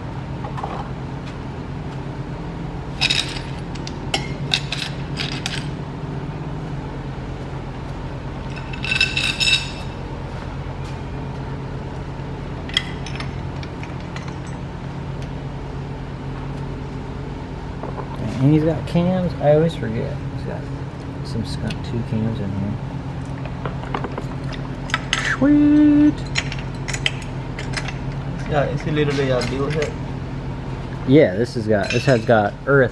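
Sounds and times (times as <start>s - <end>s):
steady low hum: 0.0s - 32.9s
metal engine parts clinking: 2.9s - 5.8s, 8.4s - 10.0s, 12.6s - 14.7s, 26.2s - 30.0s, 31.8s - 32.5s.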